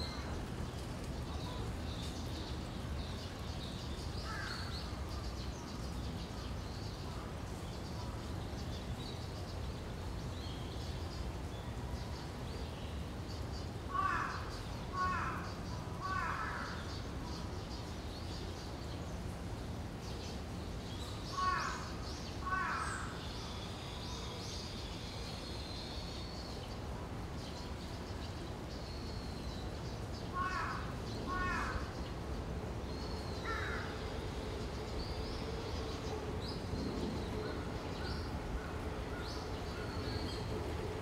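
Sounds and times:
low background noise: 0:00.0 - 0:41.0
harsh bird caws: 0:13.9 - 0:16.9, 0:21.4 - 0:23.2, 0:30.3 - 0:31.9, 0:33.4 - 0:34.0.

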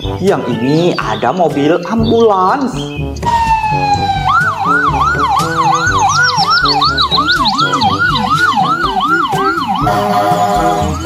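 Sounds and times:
background music with a beat: 0:00.0 - 0:11.0
ambulance siren yelping: 0:03.2 - 0:11.0.

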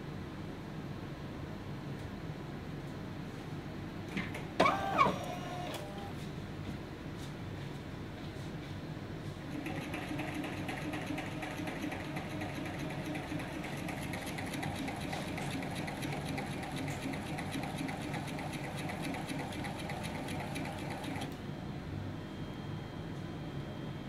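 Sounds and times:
pump motor pulsing: 0:09.5 - 0:21.4.

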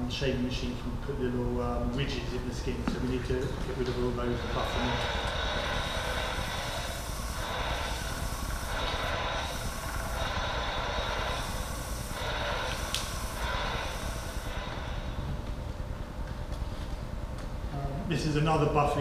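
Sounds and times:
leather buffing machine hissing: 0:02.3 - 0:15.8.

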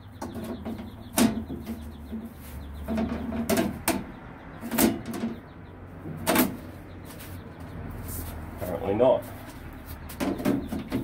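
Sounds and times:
sheet metal panel clanking: 0:00.2 - 0:05.5, 0:06.1 - 0:06.7.

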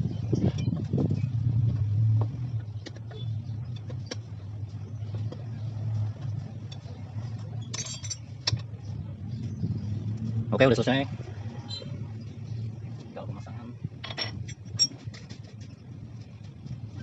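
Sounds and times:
engine humming: 0:00.0 - 0:17.0
metallic rattle: 0:07.6 - 0:08.7, 0:14.0 - 0:15.6.

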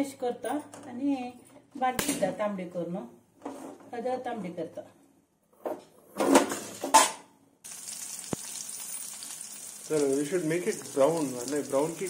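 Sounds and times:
garlic sizzling in oil: 0:07.6 - 0:12.0.

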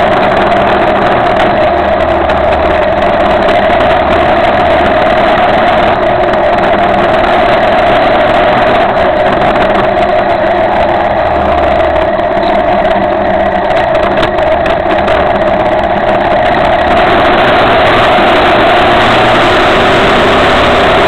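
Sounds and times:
motorcycle engine running: 0:00.0 - 0:21.0
road noise: 0:00.0 - 0:21.0
wind rush: 0:00.0 - 0:21.0.

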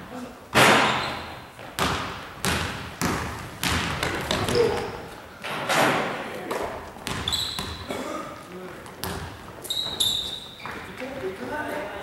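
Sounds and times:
basketball bouncing on wooden floor: 0:00.6 - 0:05.0, 0:07.0 - 0:07.9, 0:08.8 - 0:10.9.

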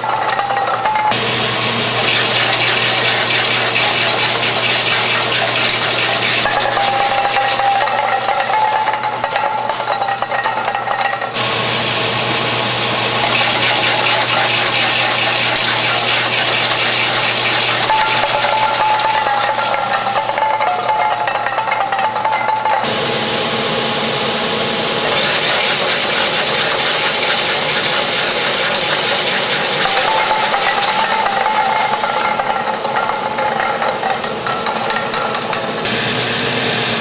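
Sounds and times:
machine mechanical rush with hiss: 0:01.1 - 0:08.9, 0:24.6 - 0:32.2
thin machine whine: 0:01.1 - 0:09.0, 0:11.4 - 0:20.4, 0:22.8 - 0:32.5, 0:35.8 - 0:37.0.

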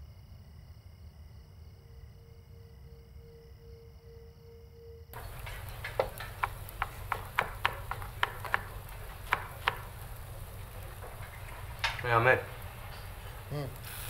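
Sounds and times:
faint grill sizzle hiss: 0:05.2 - 0:14.0
steady kitchen hum: 0:05.2 - 0:14.0.

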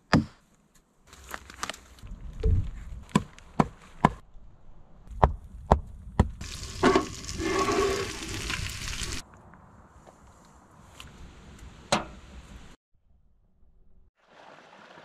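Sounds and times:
food sizzling in a pan: 0:06.4 - 0:09.2.

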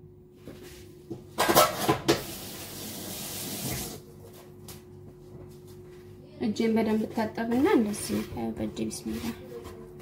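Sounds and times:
kitchen utensils clattering: 0:01.4 - 0:02.2
running tap water: 0:02.1 - 0:04.0.

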